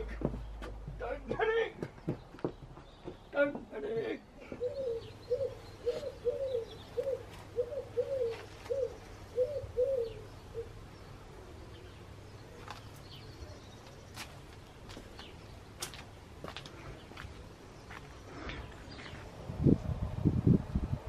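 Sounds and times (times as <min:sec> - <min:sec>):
pigeon cooing: 0:04.4 - 0:10.8.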